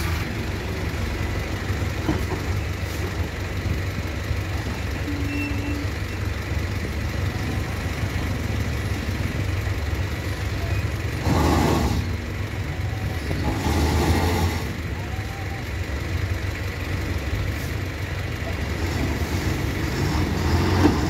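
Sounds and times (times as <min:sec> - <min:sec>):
truck diesel engine rumbling: 0:00.0 - 0:21.0.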